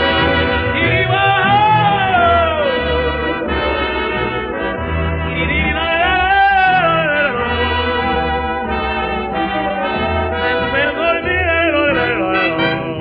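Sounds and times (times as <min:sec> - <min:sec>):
big band jazz with brass: 0:00.0 - 0:13.0.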